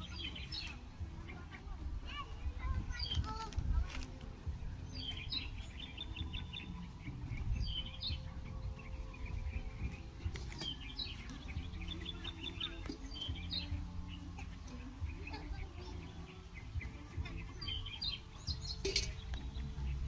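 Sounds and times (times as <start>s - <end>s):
wind rumble on microphone: 0.0s - 12.2s
small birds chirping: 0.0s - 20.0s.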